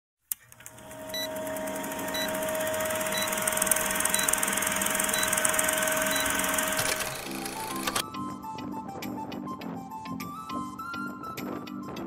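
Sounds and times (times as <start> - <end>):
film projector clatter and hiss: 0.3 - 8.0.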